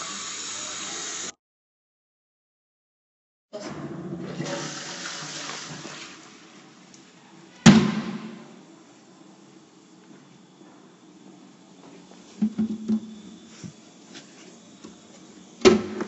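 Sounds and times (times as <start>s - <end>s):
toilet flushing: 3.6s - 6.9s
loud sharp bang: 7.6s - 8.6s.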